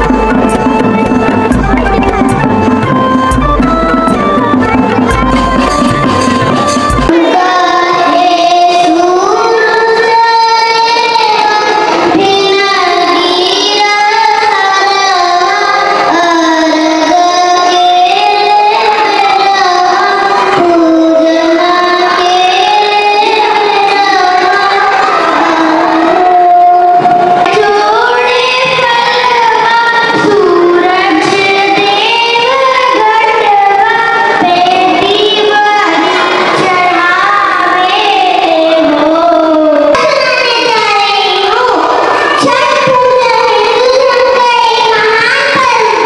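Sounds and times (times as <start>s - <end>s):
percussive music with deep bass: 0.0s - 7.1s
child singing into microphone: 0.0s - 46.0s.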